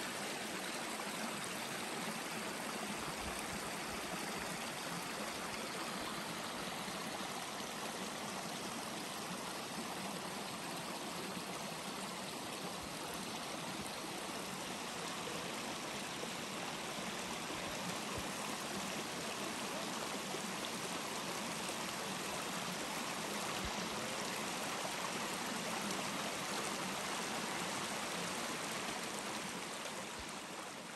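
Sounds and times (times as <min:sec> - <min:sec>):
brook flowing over rocks: 0:00.0 - 0:30.9.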